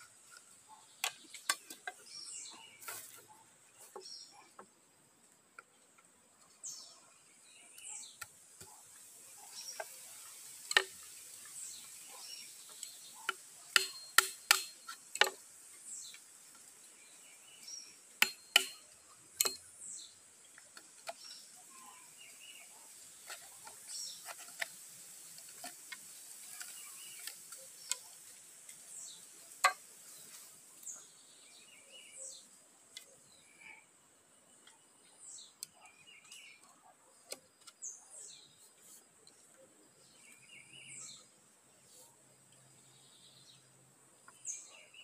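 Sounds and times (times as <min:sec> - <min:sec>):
birds chirping: 0:00.0 - 0:45.0
hand tool knocking into bamboo: 0:13.3 - 0:15.4, 0:18.2 - 0:18.8, 0:19.4 - 0:19.6, 0:29.6 - 0:29.8.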